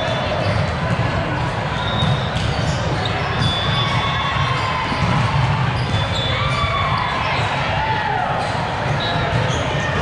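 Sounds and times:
balls thumping and bouncing: 0.0 - 7.8.

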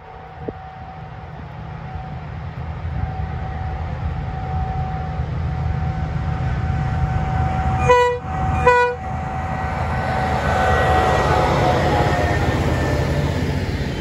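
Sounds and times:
freight train engine rumble: 0.0 - 14.0
locomotive horn toots: 7.8 - 9.3.

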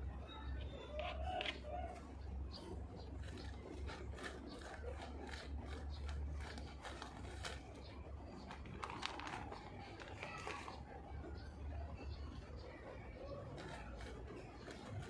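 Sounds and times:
low steady hum: 0.0 - 15.0
hand scratching in soil: 2.7 - 10.9, 13.3 - 15.0
plastic bag crinkling: 3.2 - 7.8, 8.4 - 10.8.

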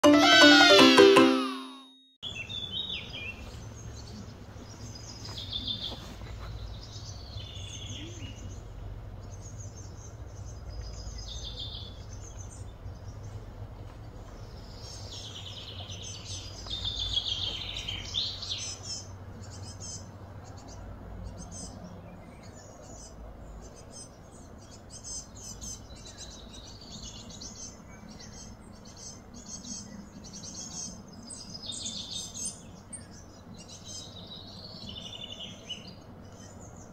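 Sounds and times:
birds chirping and calling: 14.2 - 36.9.

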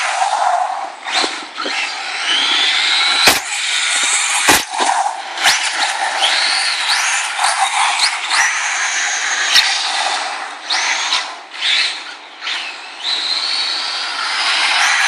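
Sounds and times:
electric motor whining: 0.0 - 15.0
toy car landing knocks: 3.1 - 3.5, 4.4 - 5.0.

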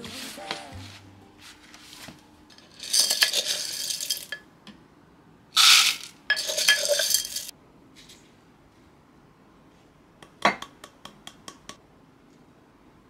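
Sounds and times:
coffee beans rattling into grinder: 2.5 - 4.4, 5.6 - 7.5.

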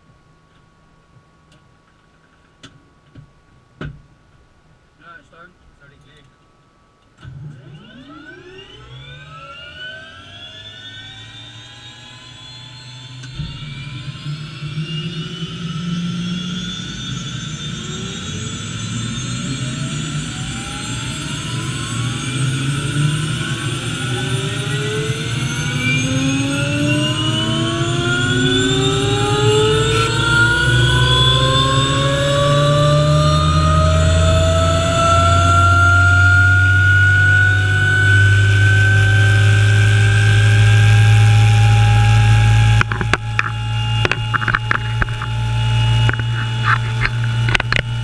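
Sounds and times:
helicopter engine whine: 7.3 - 48.0
deep engine rumble: 22.5 - 48.0.

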